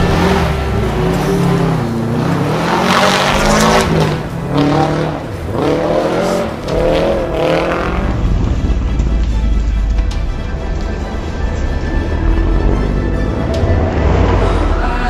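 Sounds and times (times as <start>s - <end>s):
music with heavy bass: 0.0s - 15.0s
rally car engine revving: 0.0s - 15.0s.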